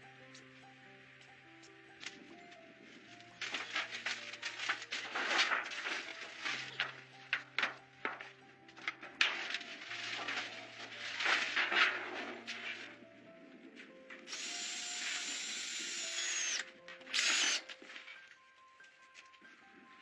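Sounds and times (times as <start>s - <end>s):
background music with bass note: 0.0s - 20.0s
rustling and scraping: 2.1s - 14.1s.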